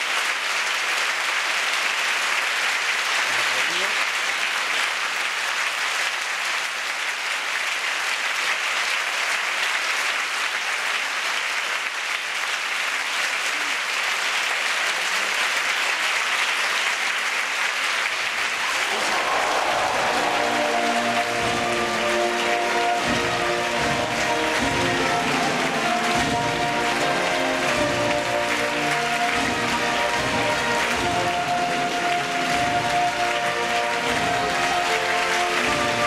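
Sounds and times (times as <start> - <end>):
audience applauding: 0.0 - 36.0
music: 19.0 - 36.0.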